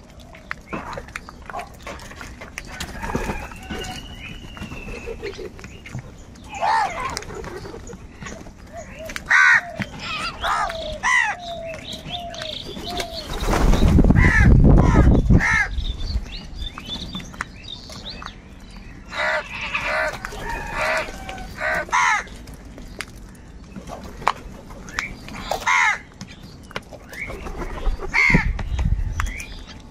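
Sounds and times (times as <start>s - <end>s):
crows cawing: 9.2s - 11.6s, 14.2s - 15.8s, 19.1s - 22.3s, 25.6s - 26.1s.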